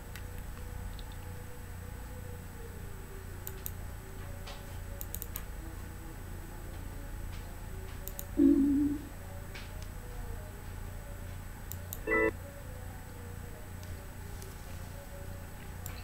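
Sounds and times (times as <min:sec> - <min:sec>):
faint music: 0:00.0 - 0:16.0
computer mouse clicking: 0:00.1 - 0:01.3, 0:03.4 - 0:03.8, 0:05.0 - 0:05.5, 0:08.0 - 0:08.4
loud low wavering tone: 0:08.4 - 0:09.1.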